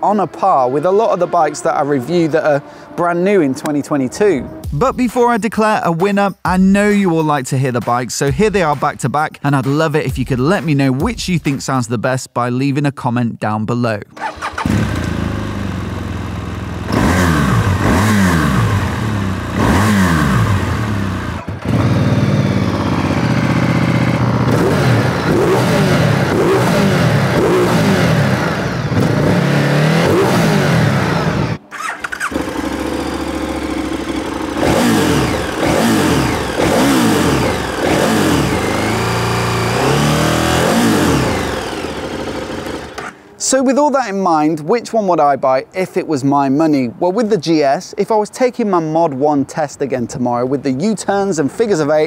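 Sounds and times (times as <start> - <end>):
motorcycle engines idling and revving: 0.0 - 5.4, 14.2 - 43.4.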